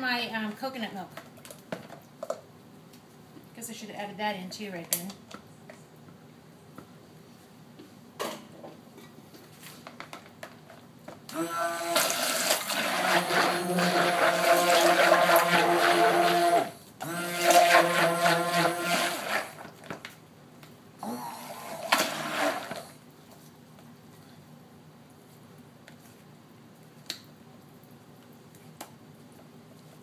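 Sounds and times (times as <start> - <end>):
stick blender motor whine: 11.3 - 19.6, 21.0 - 22.9.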